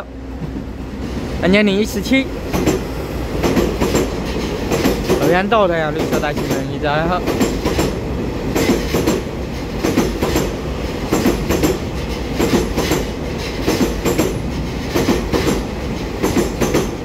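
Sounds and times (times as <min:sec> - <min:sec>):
train rumbling past: 0:00.0 - 0:17.0
wheels clicking over rail joints: 0:02.1 - 0:17.0.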